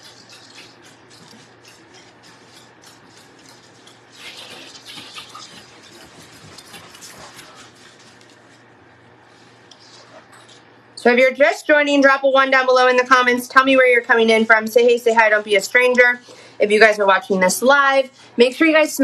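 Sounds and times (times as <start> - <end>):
wet squishing and rubbing: 0.0 - 10.3.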